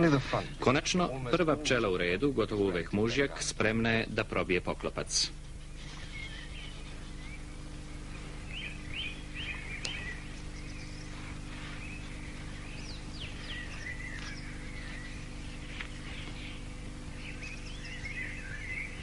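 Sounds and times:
small birds chirping: 0.0s - 19.0s
steady low hum: 0.0s - 19.0s.

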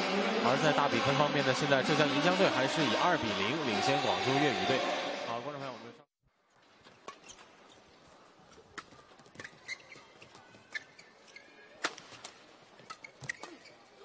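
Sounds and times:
sports hall hum: 0.0s - 14.0s
shoes squeaking on court: 6.6s - 14.0s.

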